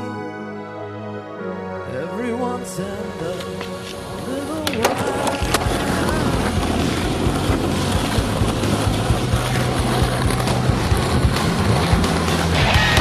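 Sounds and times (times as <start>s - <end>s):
skateboard wheels rolling on asphalt: 3.0s - 13.0s.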